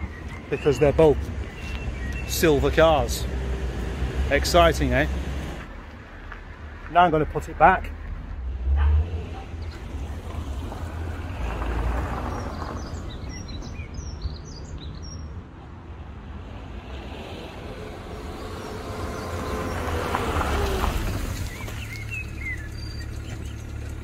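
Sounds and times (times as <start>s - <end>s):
small birds chirping: 0.0s - 3.4s, 9.4s - 15.4s, 17.5s - 24.0s
car driving on gravel: 0.0s - 7.8s, 8.6s - 15.2s, 16.5s - 24.0s.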